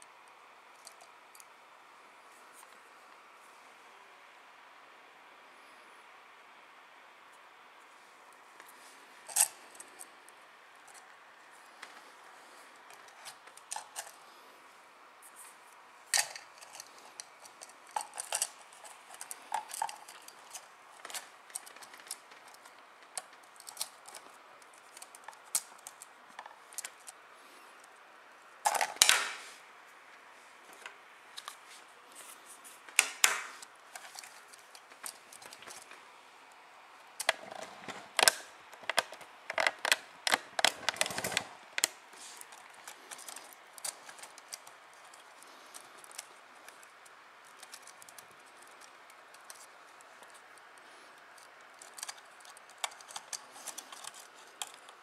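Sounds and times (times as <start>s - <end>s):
plastic parts clicking and tapping: 12.9s - 14.2s, 16.2s - 27.2s, 28.7s - 29.4s, 32.9s - 36.0s, 37.2s - 50.6s, 51.4s - 55.0s.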